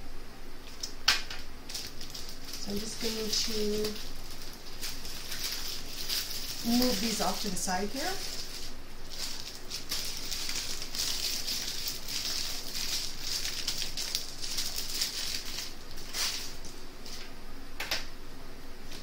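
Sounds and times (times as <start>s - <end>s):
plastic bags rustling and crinkling: 0.6s - 17.3s.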